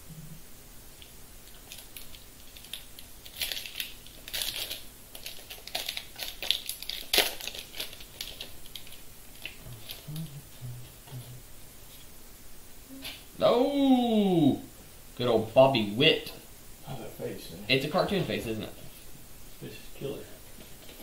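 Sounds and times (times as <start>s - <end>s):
foil wrapper crinkling and tearing: 1.5s - 10.0s.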